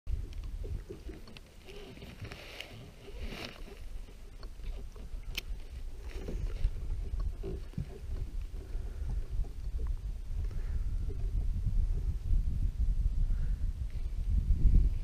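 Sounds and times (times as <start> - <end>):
water lapping against hull: 0.1 - 12.9
wind on microphone: 0.1 - 15.0
light ticks: 0.2 - 2.8, 3.4 - 6.6.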